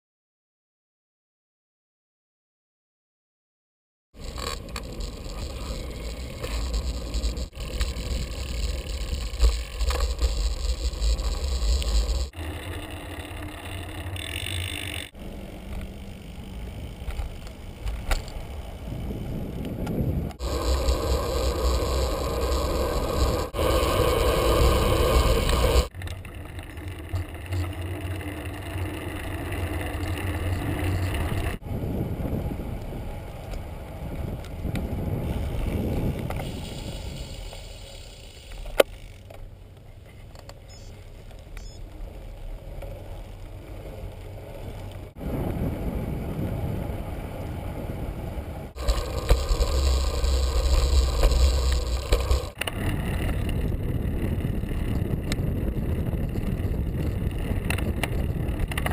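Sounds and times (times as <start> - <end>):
bicycle tyres rumbling on pavement: 4.2 - 40.0, 40.7 - 58.9
wind buffeting microphone: 17.7 - 25.9, 30.4 - 37.4, 45.0 - 58.9.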